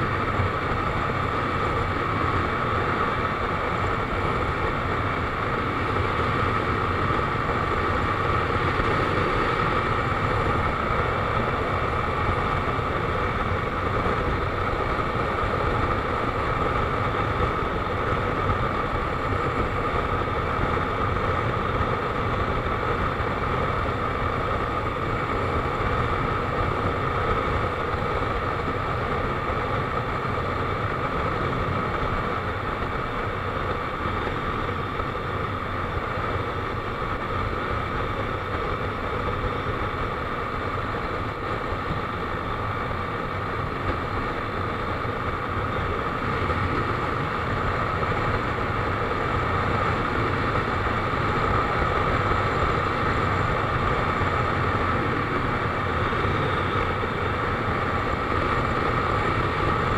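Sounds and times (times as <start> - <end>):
road noise: 0.0 - 59.9
wind noise: 0.0 - 59.9.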